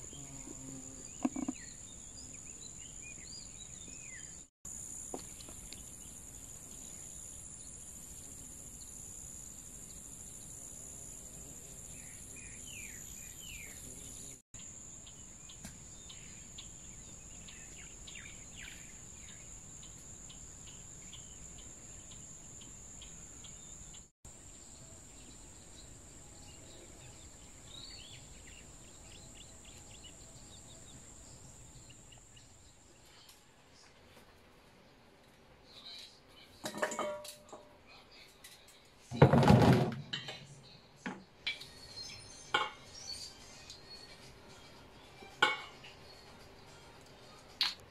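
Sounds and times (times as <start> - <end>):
birds chirping: 0.0 - 34.0.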